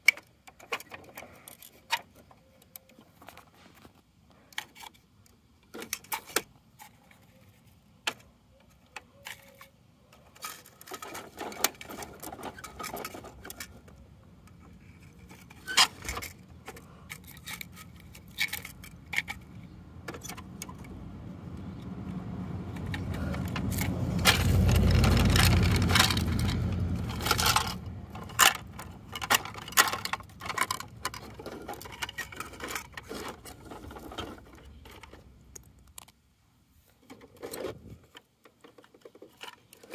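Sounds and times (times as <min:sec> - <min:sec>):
plastic toy clicking and clattering: 0:00.0 - 0:03.5, 0:04.5 - 0:21.0, 0:22.7 - 0:36.2, 0:37.0 - 0:39.9
low rumble: 0:20.8 - 0:29.8.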